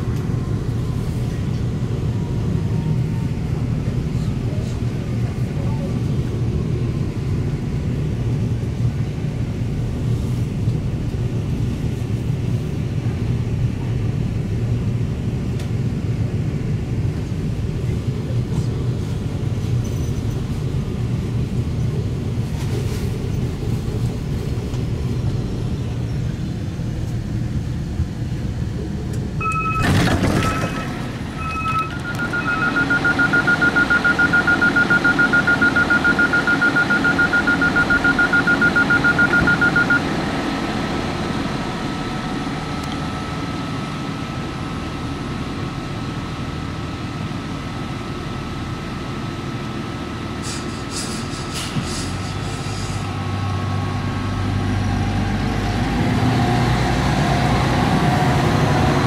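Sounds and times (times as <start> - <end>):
diesel train engines idling: 0.0 - 59.0
rapid door warning beep: 29.4 - 40.0
short beeps: 29.4 - 40.0
steady high tone: 29.4 - 40.1
brief rush of noise: 50.4 - 53.1.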